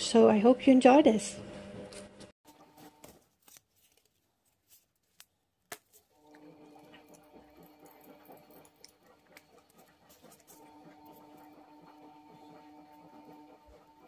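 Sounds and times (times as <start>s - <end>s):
washing machine hum: 6.1s - 14.0s.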